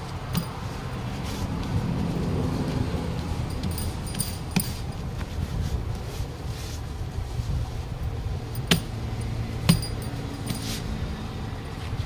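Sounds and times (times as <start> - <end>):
steady low rumble: 0.0 - 12.0
metal bangles clinking: 0.2 - 1.0, 3.2 - 5.1, 8.5 - 10.9.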